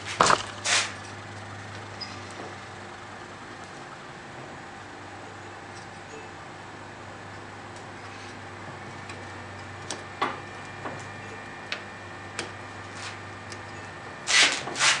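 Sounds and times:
rubbing scrape: 0.6 - 1.0, 14.3 - 15.0.

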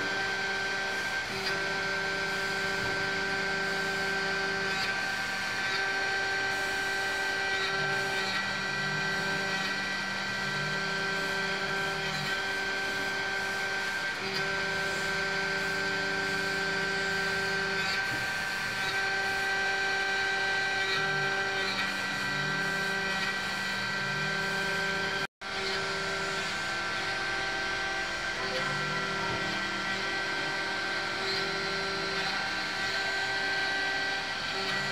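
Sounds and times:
milling machine spindle whine: 0.0 - 34.9
low motor tones gliding in pitch: 19.0 - 34.9.

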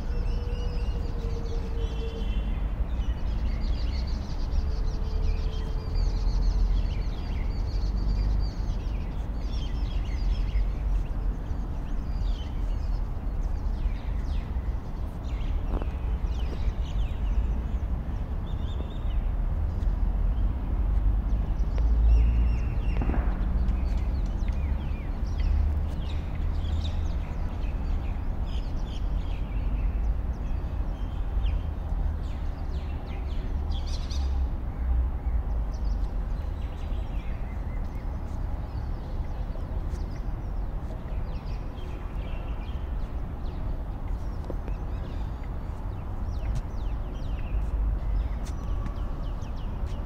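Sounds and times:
bird calls and chirps: 21.3 - 50.0.

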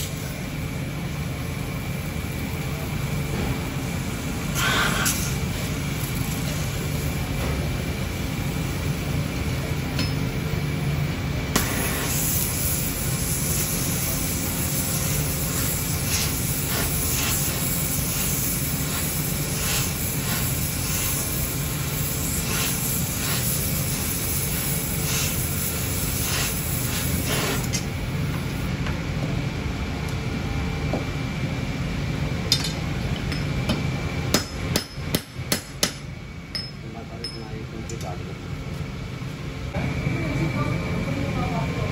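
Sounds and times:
gas torch hissing: 0.0 - 0.6, 1.2 - 9.9, 11.5 - 28.7
hammer striking hot metal: 32.5 - 37.5.

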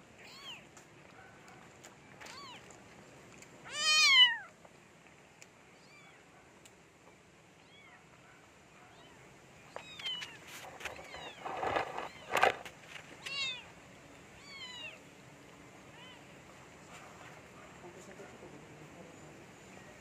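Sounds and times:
cat meowing: 0.2 - 0.6, 3.7 - 4.5, 14.4 - 15.0.

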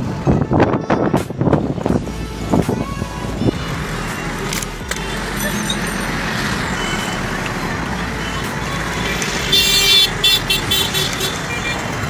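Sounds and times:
road traffic noise: 0.0 - 12.0
high-pitched vehicle horn: 9.4 - 11.9.

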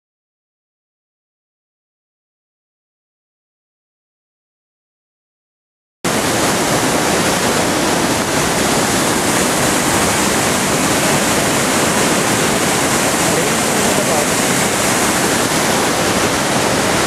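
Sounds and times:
waterfall roaring over rocks: 6.1 - 17.0.

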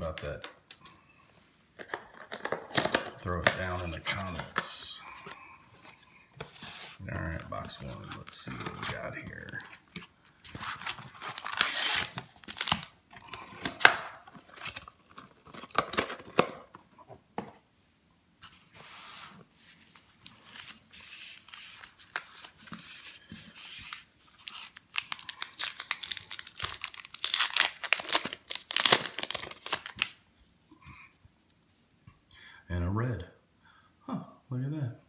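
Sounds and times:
wrapper crinkling and tearing: 10.4 - 16.5, 20.2 - 30.2.

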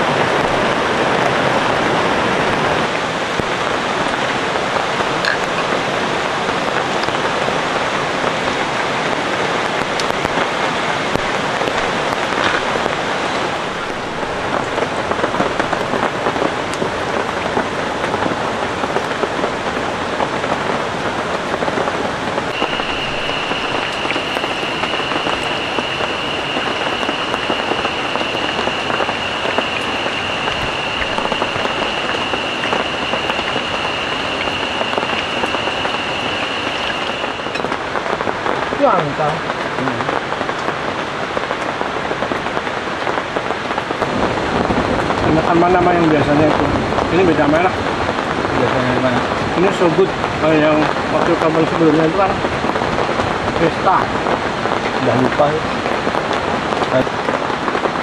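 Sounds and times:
rain falling: 0.0 - 58.0
high-pitched tone: 22.5 - 37.7.

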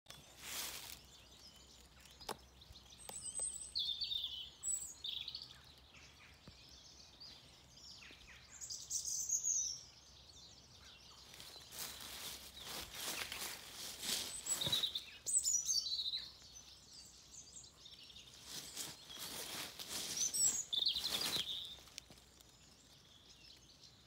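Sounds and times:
birds singing and calling: 0.1 - 24.0
high bird chirping: 0.1 - 24.0
rustling: 0.3 - 1.2, 11.3 - 15.2, 18.4 - 23.0.

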